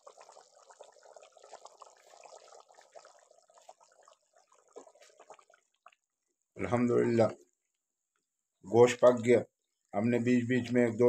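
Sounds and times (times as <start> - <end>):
pot simmering bubbling: 0.0 - 8.6.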